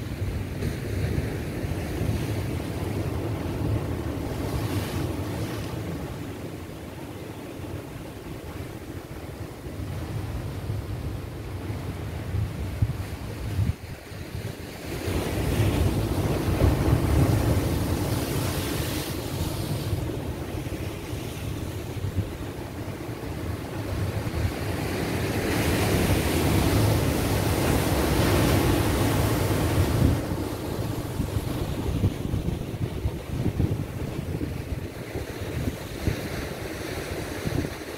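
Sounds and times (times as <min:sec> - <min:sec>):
wind buffeting microphone: 0:08.2 - 0:37.9
surf breaking on rocky shore: 0:15.1 - 0:37.9.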